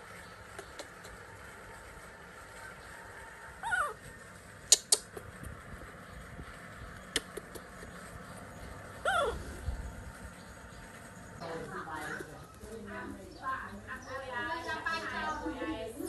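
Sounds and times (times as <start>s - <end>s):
baby monkey squealing: 3.6s - 4.0s, 9.0s - 9.6s.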